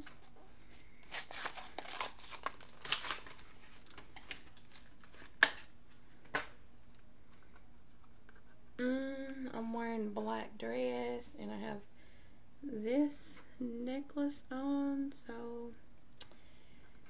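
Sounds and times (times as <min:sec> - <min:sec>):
packaging crinkling and rustling: 0:00.0 - 0:06.0.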